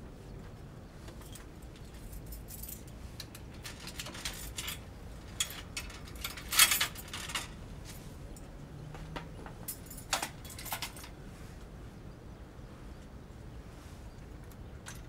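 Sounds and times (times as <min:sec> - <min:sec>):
bicycle metallic clinks and rattles: 0:01.1 - 0:08.5, 0:09.4 - 0:11.2, 0:14.8 - 0:15.0.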